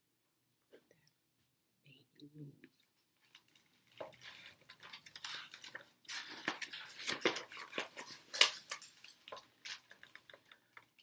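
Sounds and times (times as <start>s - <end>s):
paper page rustling: 3.8s - 8.5s.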